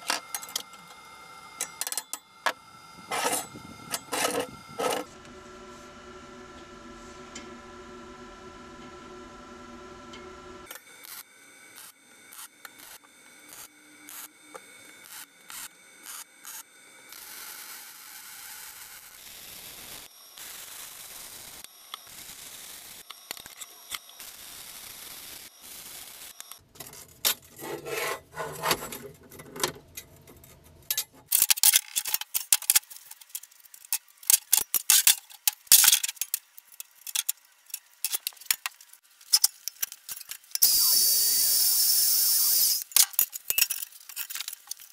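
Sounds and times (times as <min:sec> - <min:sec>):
welder arc crackling: 0:10.7 - 0:27.6, 0:32.0 - 0:44.9.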